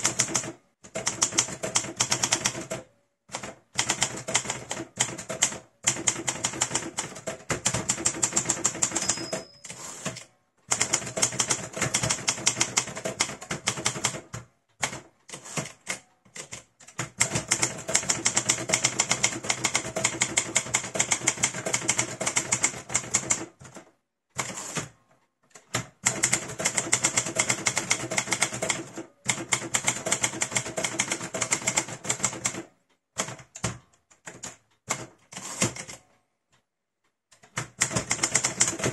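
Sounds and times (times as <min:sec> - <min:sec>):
typewriter bell ring: 0:08.8 - 0:10.0.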